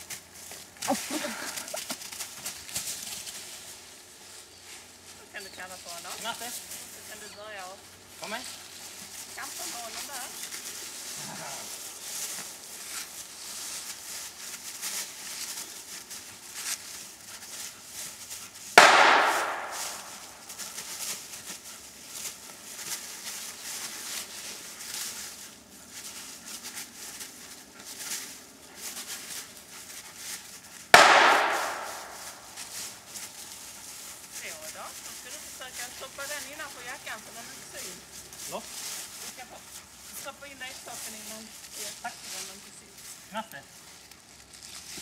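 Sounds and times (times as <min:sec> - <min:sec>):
dry leaves rustling underfoot: 0:00.0 - 0:45.0
gunshots echoing: 0:18.8 - 0:20.3, 0:31.0 - 0:32.5.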